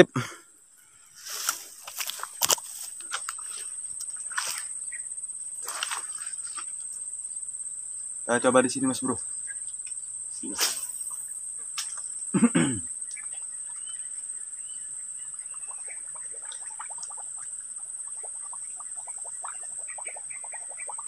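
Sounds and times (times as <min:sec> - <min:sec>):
crickets droning: 0:00.0 - 0:21.0
frogs croaking: 0:00.0 - 0:21.0
fishing rod swishing: 0:05.6 - 0:06.6, 0:10.6 - 0:11.1.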